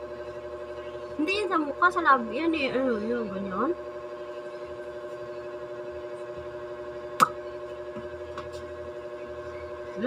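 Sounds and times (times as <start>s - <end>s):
steady tonal hum: 0.0s - 10.0s.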